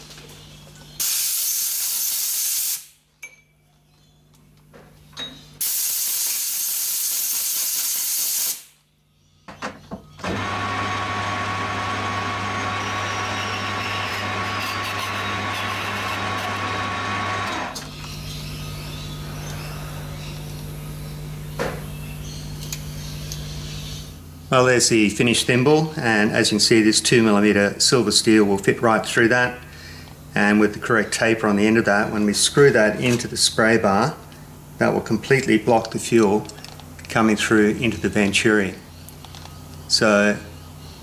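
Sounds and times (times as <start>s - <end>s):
loud hissing bursts: 1.0s - 3.0s, 5.6s - 8.8s
metal lathe running: 10.2s - 17.8s.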